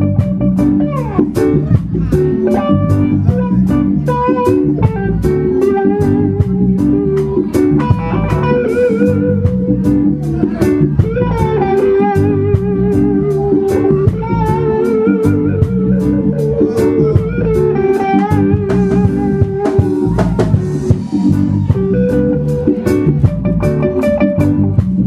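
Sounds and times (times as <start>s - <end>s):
bass guitar: 0.0s - 25.0s
drum kit beat: 0.0s - 25.0s
electric guitar: 0.0s - 25.0s
wavering melody line: 11.0s - 22.8s.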